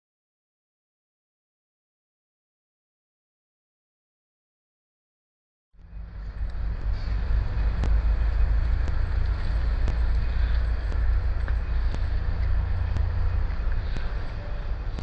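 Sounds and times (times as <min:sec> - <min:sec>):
low outdoor rumble: 0:05.8 - 0:15.0.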